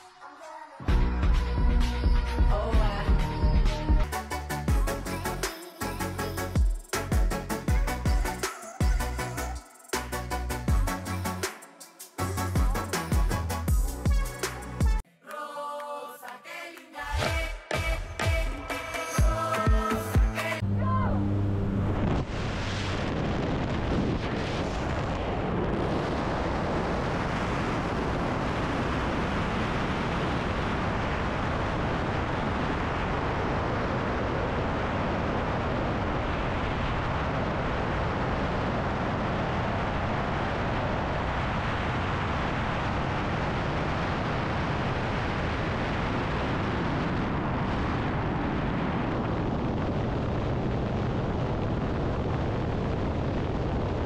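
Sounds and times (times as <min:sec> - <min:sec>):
wind rushing over microphone: 0:21.6 - 0:54.0.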